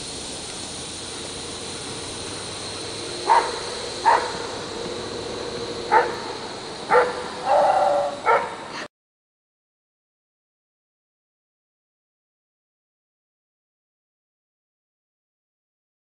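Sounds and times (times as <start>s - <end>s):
steady hiss: 0.0s - 8.9s
dog drawn-out call: 2.7s - 8.9s
dog barking: 3.2s - 4.5s, 5.9s - 8.9s.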